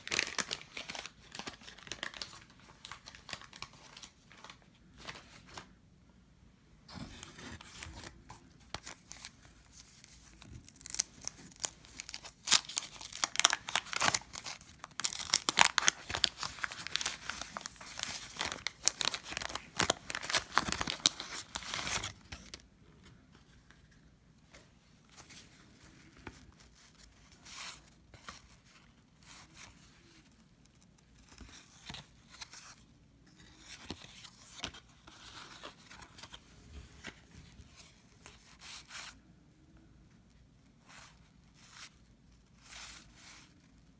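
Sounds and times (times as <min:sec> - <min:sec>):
paper wrapper tearing and crinkling: 0:00.0 - 0:04.5, 0:10.3 - 0:22.5.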